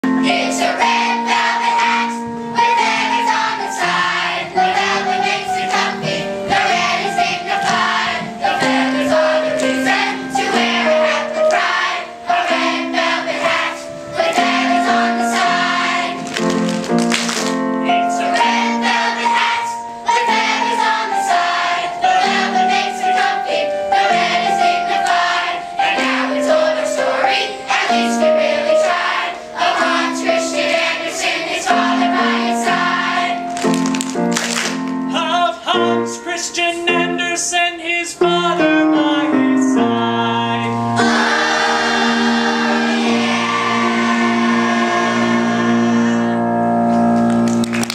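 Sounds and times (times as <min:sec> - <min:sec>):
children's chorus singing: 0:00.0 - 0:16.8, 0:17.8 - 0:33.9, 0:41.0 - 0:46.6
music: 0:00.0 - 0:47.9.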